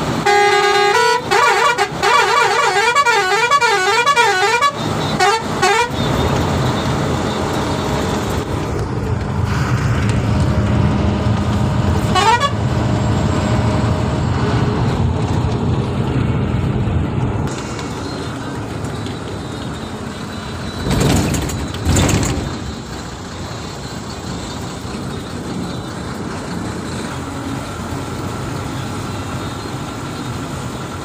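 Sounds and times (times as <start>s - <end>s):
bus engine rumble: 0.0s - 31.0s
road noise: 0.0s - 31.0s
warbling vehicle horn: 0.2s - 6.2s, 12.0s - 12.6s.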